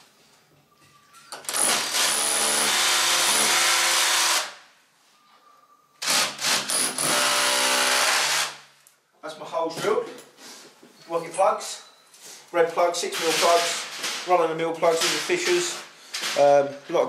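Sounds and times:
cordless drill boring into wall: 1.4 - 4.6, 6.0 - 8.6.

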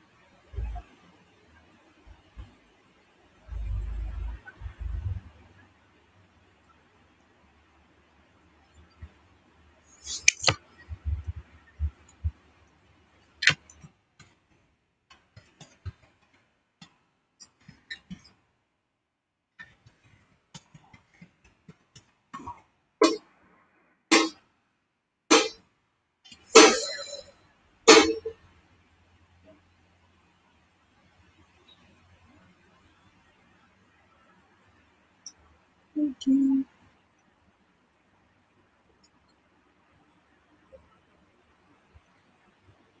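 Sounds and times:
person making sharp mouth sounds: 10.0 - 12.2.

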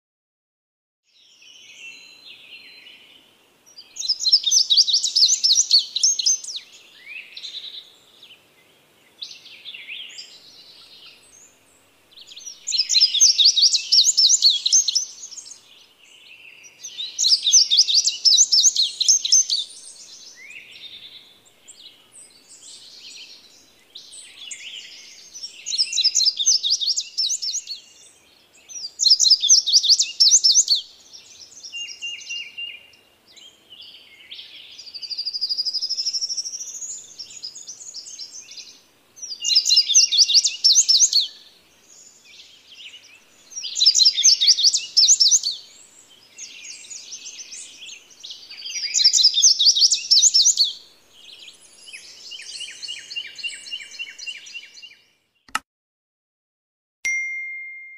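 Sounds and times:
soft bird chirps: 1.1 - 55.6
bird song high repeated notes: 57.1 - 57.9.

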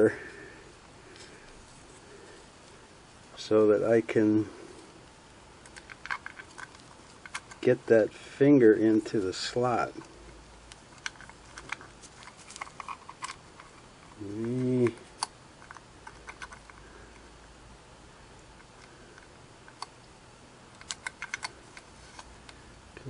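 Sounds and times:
small parts clicking: 5.6 - 7.7, 9.7 - 17.2, 20.7 - 22.6.

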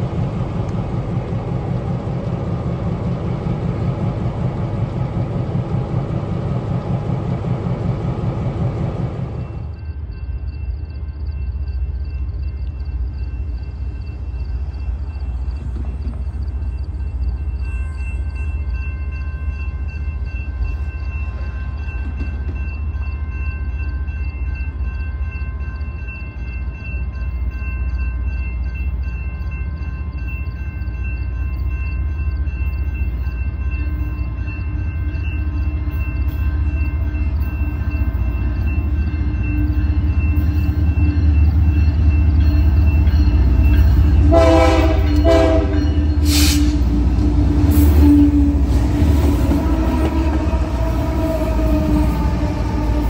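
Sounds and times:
diesel train rumble: 0.0 - 53.0
crossing bell ringing: 9.1 - 53.0.

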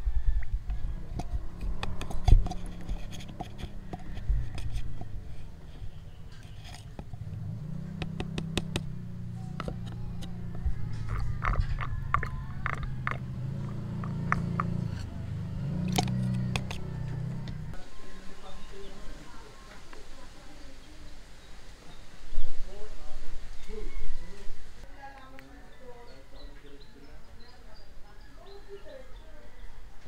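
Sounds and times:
low hum: 0.0 - 17.8
plastic clicks and scrapes: 1.2 - 7.4, 9.5 - 13.2, 15.9 - 17.6.

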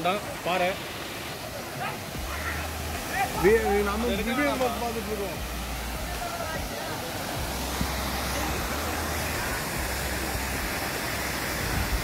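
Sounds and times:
waterfall rushing over rocks: 0.0 - 12.0.

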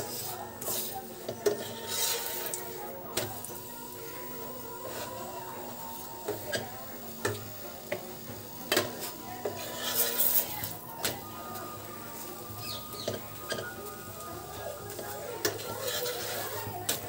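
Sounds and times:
wooden spatula scraping a pan: 0.0 - 3.4, 8.8 - 10.8, 12.2 - 17.0.

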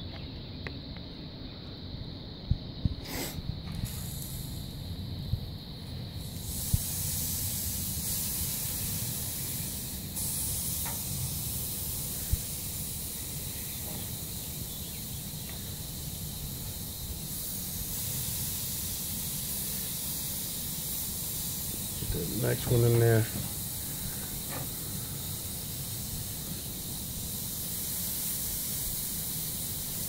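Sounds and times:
meat sizzling on a grill: 6.2 - 30.0.

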